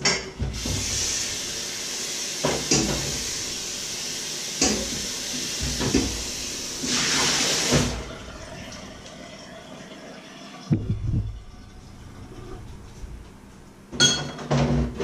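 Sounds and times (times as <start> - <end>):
water running from tap: 0.4 - 12.3.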